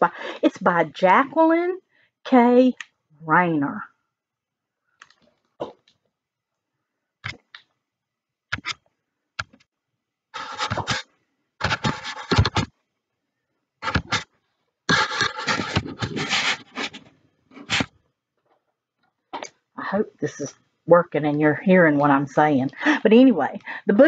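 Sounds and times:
microphone handling noise: 0:14.9 - 0:17.1.

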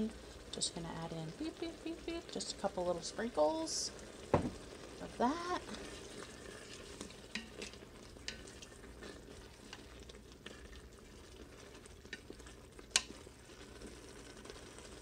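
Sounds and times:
low sizzle: 0:00.0 - 0:15.0
wooden spoon stirring sauce: 0:05.3 - 0:15.0.

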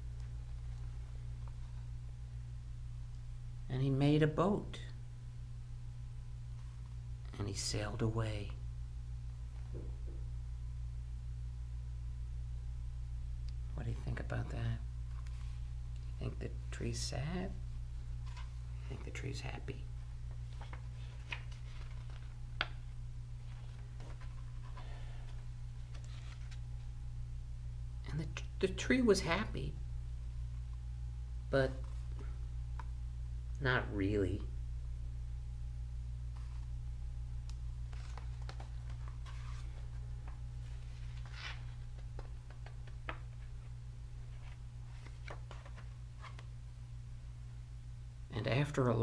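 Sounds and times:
steady low hum: 0:00.0 - 0:49.0
book pages rustling: 0:15.0 - 0:16.2, 0:18.2 - 0:19.1, 0:20.0 - 0:26.9, 0:36.3 - 0:36.8, 0:37.8 - 0:46.6.

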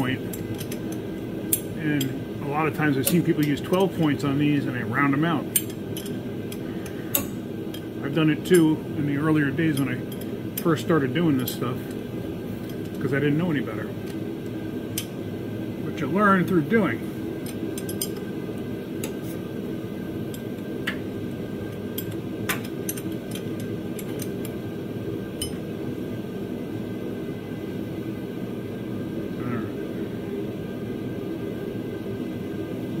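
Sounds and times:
steady background hum: 0:00.0 - 0:33.0
wrench clinking on metal: 0:17.5 - 0:18.2, 0:25.4 - 0:25.6.

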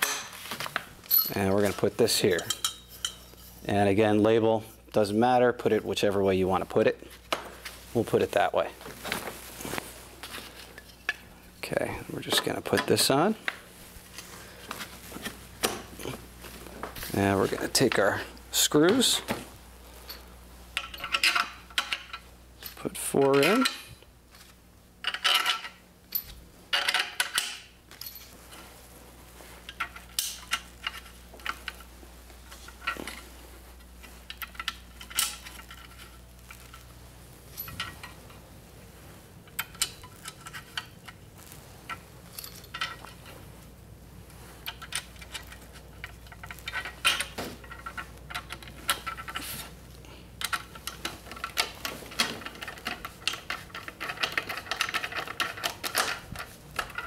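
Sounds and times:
metal screws clinking: 0:20.0 - 0:23.9, 0:41.9 - 0:43.3.

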